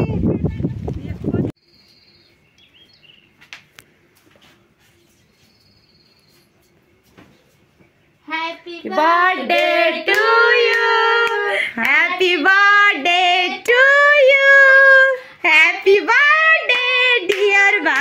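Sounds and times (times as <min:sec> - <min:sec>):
woman singing unaccompanied: 0:08.3 - 0:18.0.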